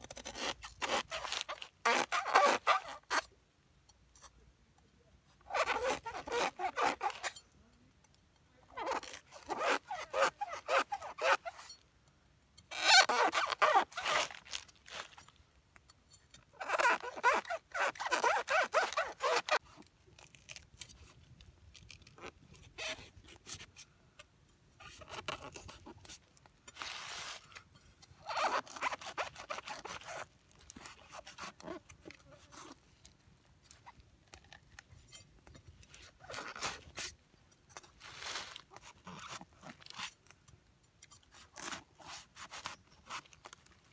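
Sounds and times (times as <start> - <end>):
machete scraping coconut husk: 0.0 - 3.2, 26.8 - 27.6, 38.0 - 40.2, 41.3 - 43.4.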